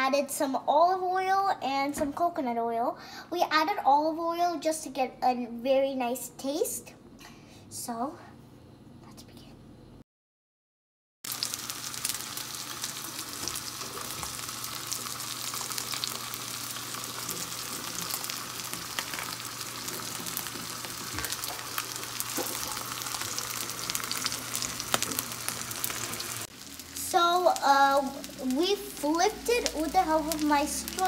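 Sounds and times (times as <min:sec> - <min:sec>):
fish sizzling in oil: 0:11.2 - 0:31.0.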